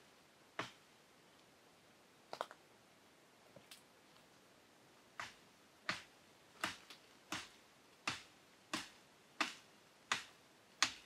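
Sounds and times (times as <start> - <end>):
blade chopping tree branch: 5.2 - 7.5.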